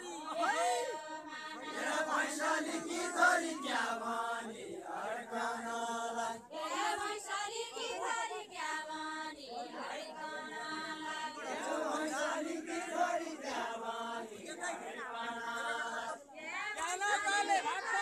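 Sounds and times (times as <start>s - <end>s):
group singing folk song: 0.0s - 18.0s.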